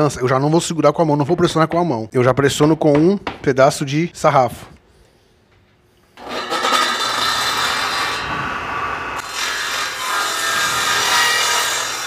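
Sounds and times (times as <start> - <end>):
circular saw running: 6.2 - 12.0.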